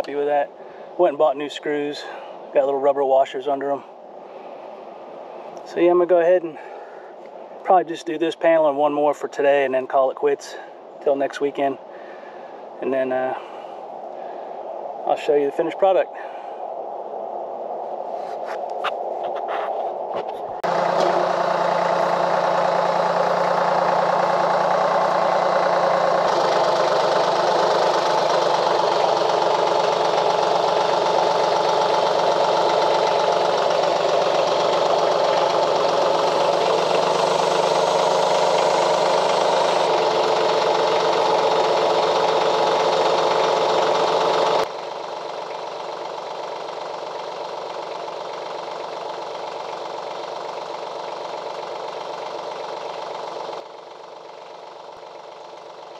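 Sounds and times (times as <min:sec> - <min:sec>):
tractor engine running: 0:00.0 - 0:03.0, 0:18.4 - 0:55.9.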